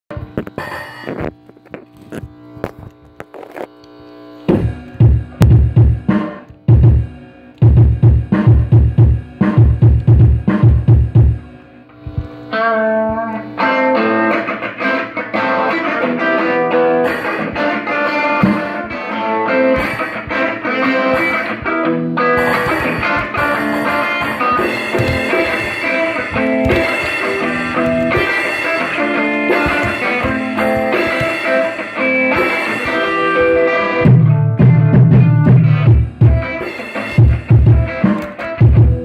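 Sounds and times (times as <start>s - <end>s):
guitar: 0.1s - 39.0s
drum kit playing: 4.5s - 12.3s, 16.9s - 19.0s, 19.6s - 39.0s
band playing blues-rock: 13.8s - 39.0s.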